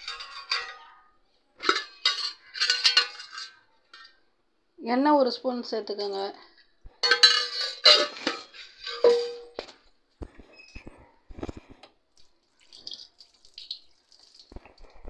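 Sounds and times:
metal utensils clinking on vessels: 0:00.0 - 0:04.2, 0:07.0 - 0:09.8.

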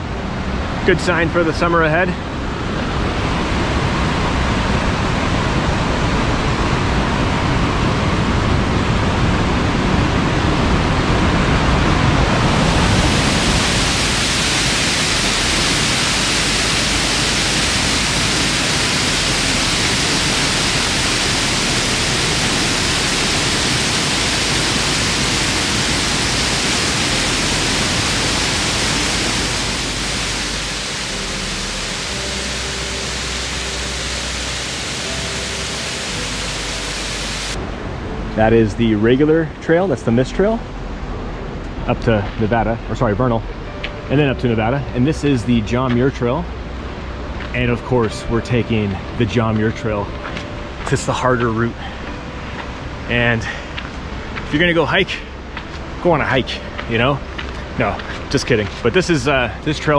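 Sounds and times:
whitewater rushing: 0:09.8 - 0:38.8.

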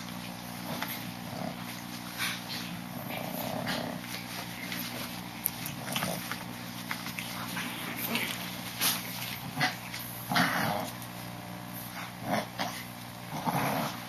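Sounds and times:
puppies tussling: 0:00.0 - 0:14.0
puppy vocal sounds: 0:00.5 - 0:11.1.

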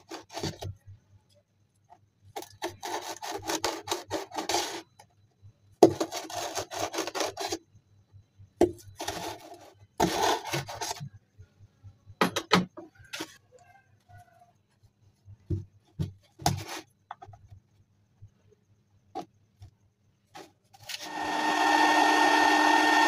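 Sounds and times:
metal tool scraping cardboard: 0:00.0 - 0:00.8, 0:02.4 - 0:05.1, 0:05.8 - 0:07.7, 0:08.7 - 0:11.1, 0:16.0 - 0:17.3.

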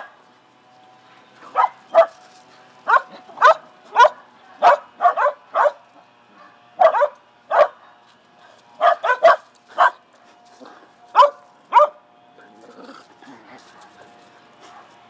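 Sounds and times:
dogs barking: 0:01.4 - 0:08.1, 0:08.8 - 0:10.1, 0:11.1 - 0:12.0.

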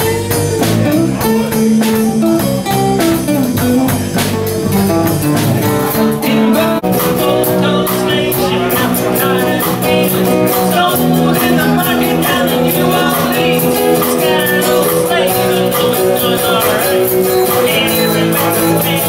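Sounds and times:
live band instrumental: 0:00.0 - 0:19.0.

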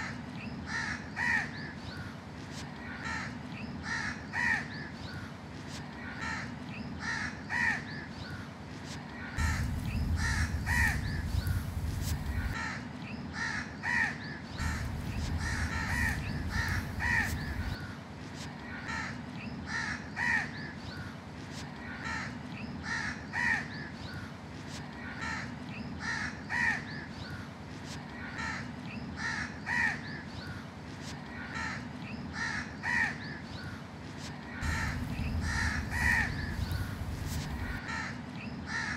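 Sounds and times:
crows cawing: 0:00.0 - 0:02.1, 0:02.8 - 0:04.8, 0:06.0 - 0:08.4, 0:09.2 - 0:18.0, 0:18.7 - 0:20.6, 0:21.8 - 0:23.7, 0:25.0 - 0:27.5, 0:28.2 - 0:30.1, 0:31.3 - 0:33.2, 0:34.5 - 0:38.9
low rumbling noise: 0:09.4 - 0:12.6, 0:14.6 - 0:17.8, 0:34.6 - 0:37.8.

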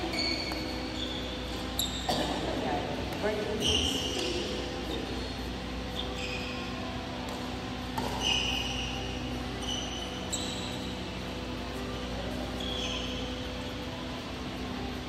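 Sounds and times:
shoes squeaking on court: 0:00.0 - 0:15.0
steady hum: 0:00.0 - 0:15.0
racket hitting shuttlecock: 0:07.2 - 0:08.8.

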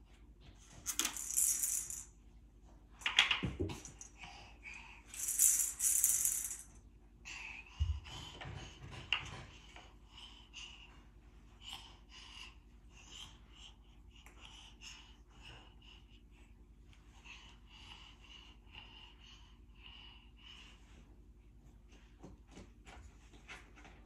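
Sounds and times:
toys rattling and clattering: 0:00.7 - 0:02.1, 0:05.1 - 0:06.8.

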